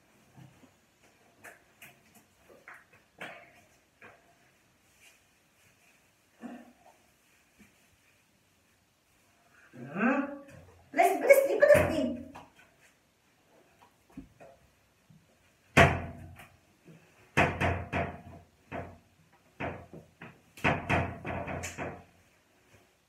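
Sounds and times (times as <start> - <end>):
knocks and thumps in bathroom: 15.7 - 16.6, 17.3 - 22.3.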